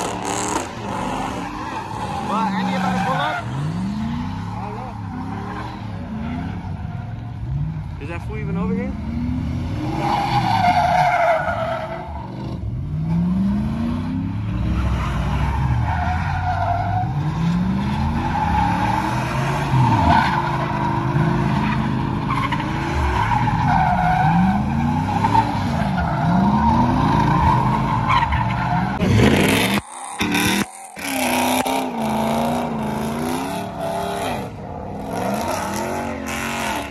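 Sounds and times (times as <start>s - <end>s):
tires squealing and skidding: 0.0s - 8.8s, 9.6s - 13.4s, 14.5s - 36.9s.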